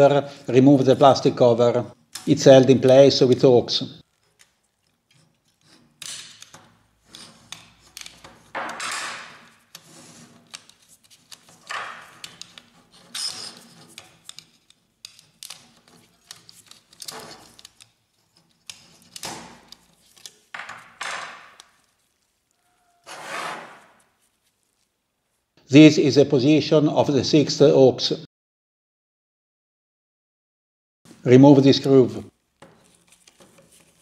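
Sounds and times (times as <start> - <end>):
screwdriver scraping plastic: 4.0 - 22.4, 23.0 - 24.9, 32.6 - 34.0.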